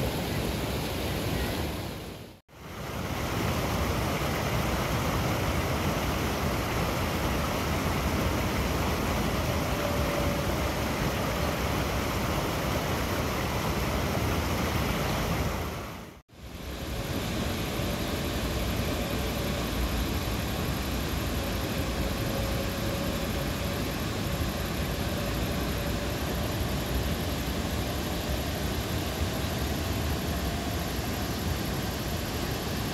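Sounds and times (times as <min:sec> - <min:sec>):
faint whine: 0:00.0 - 0:32.9.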